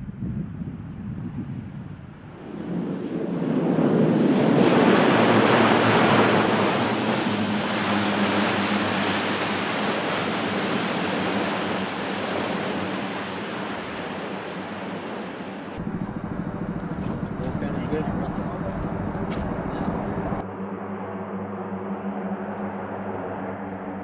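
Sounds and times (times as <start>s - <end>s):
turboprop aircraft roaring: 2.4s - 12.2s, 15.8s - 22.4s.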